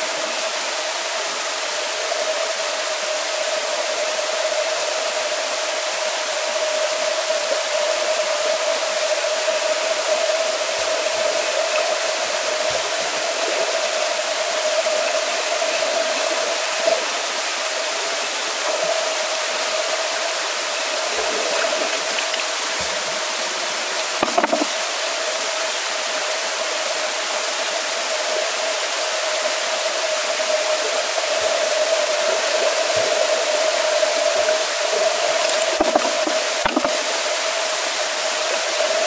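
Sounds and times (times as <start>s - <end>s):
rushing pool water: 0.0s - 39.0s
short knock: 24.2s - 24.7s, 35.7s - 37.0s.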